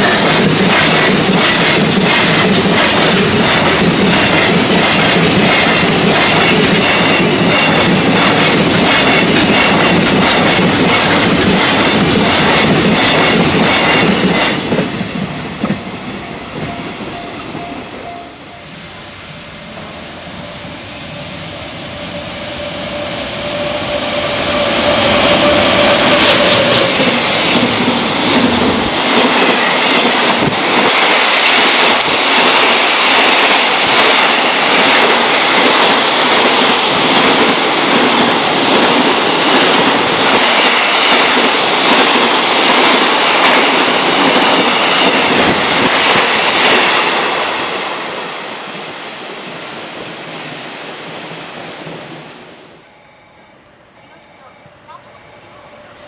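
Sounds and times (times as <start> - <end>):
electric locomotive hum: 0.0 - 56.0.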